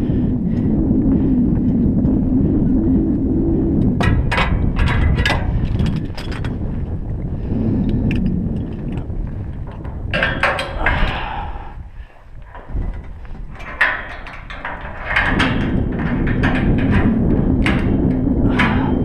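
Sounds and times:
low steady rumble: 0.0 - 19.0
climbing hardware clinking on steel: 4.0 - 6.7, 7.8 - 19.0.

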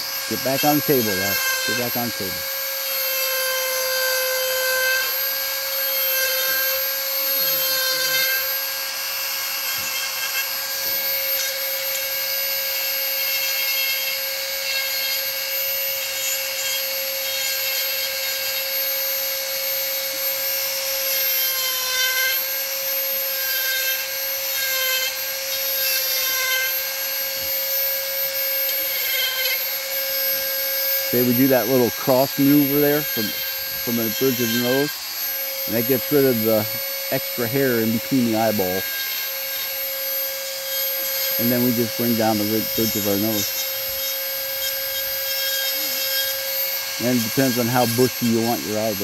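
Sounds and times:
burr grinding into wood: 0.0 - 2.6, 30.9 - 39.1, 41.3 - 44.0, 47.0 - 49.0
rotary tool whine: 0.0 - 49.0.

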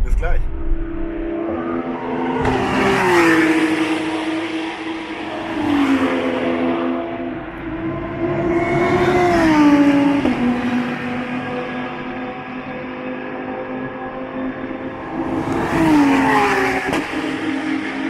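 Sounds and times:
race car engines passing: 0.4 - 18.0.

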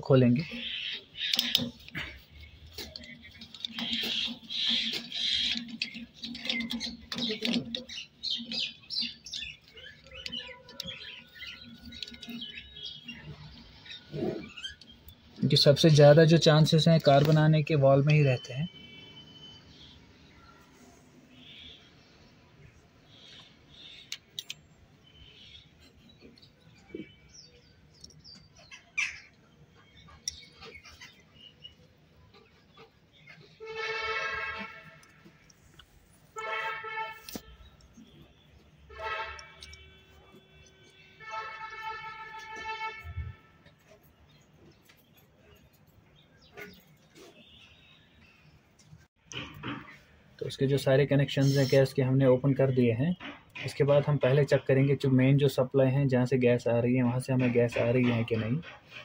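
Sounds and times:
small birds chirping: 0.0 - 33.6, 43.7 - 59.0
metal parts clicking and scraping: 1.2 - 12.8.

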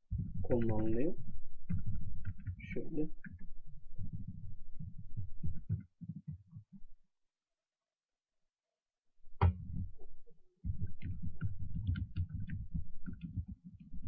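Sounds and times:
computer keyboard typing: 1.7 - 4.2, 10.7 - 14.0.

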